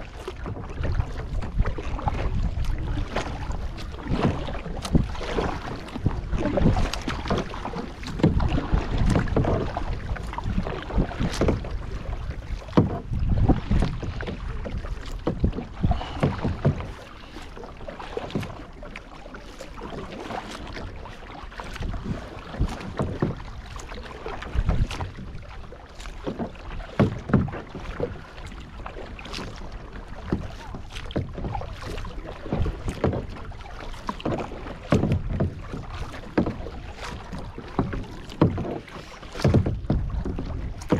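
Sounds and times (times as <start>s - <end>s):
wind rumble on microphone: 0.0s - 17.0s, 20.0s - 25.5s, 39.4s - 40.9s
paddle strokes splashing in water: 0.0s - 40.9s.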